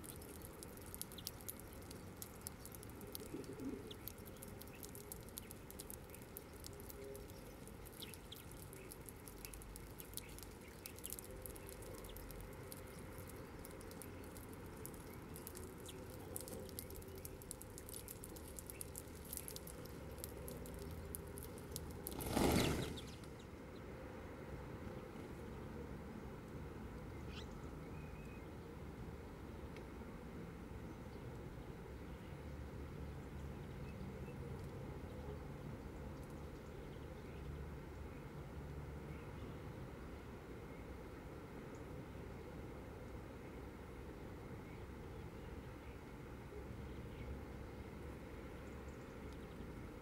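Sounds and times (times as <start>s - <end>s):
birds pecking seed ticks: 0.0s - 23.5s
flock of wings whirring: 22.0s - 23.3s.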